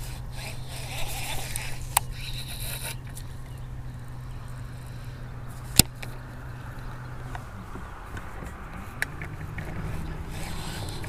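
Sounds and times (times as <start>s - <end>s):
sharp reel click: 0.0s - 3.3s
fishing reel line whirring: 0.0s - 7.3s, 8.4s - 11.0s.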